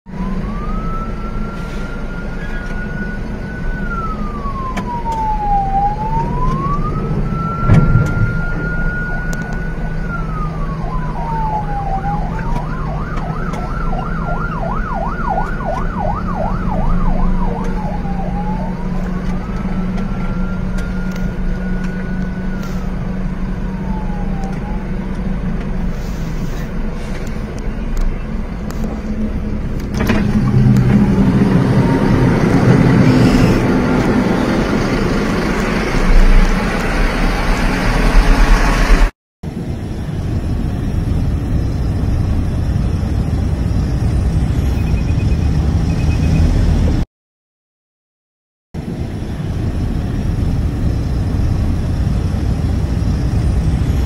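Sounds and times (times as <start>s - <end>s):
emergency vehicle siren wailing: 0.1s - 39.1s
low hum of vehicle engine: 0.1s - 47.0s, 48.8s - 54.0s
loud thump: 7.6s - 8.7s.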